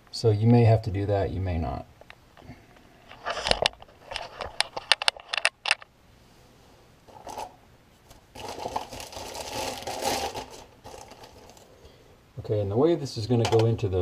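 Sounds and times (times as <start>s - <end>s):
plastic rustling and scraping: 3.1s - 5.8s, 7.1s - 11.9s.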